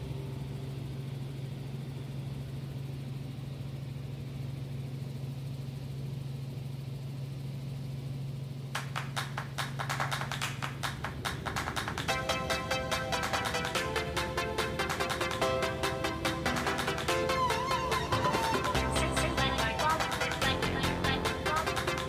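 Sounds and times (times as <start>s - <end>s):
helicopter engine and rotors droning: 0.0s - 22.0s
music with fast beat: 8.8s - 22.0s.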